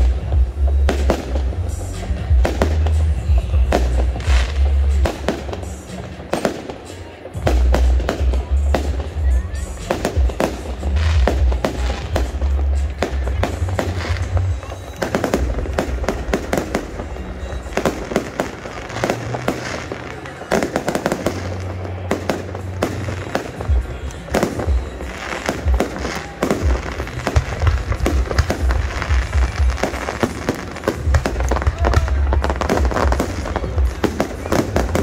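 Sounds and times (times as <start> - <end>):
fireworks bangs and crackling: 0.0 - 35.0.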